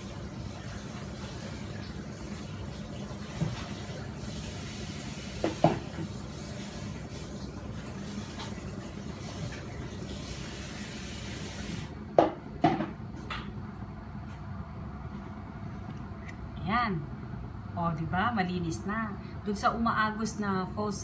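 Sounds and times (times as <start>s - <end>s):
kitchen tap running: 0.0s - 12.0s.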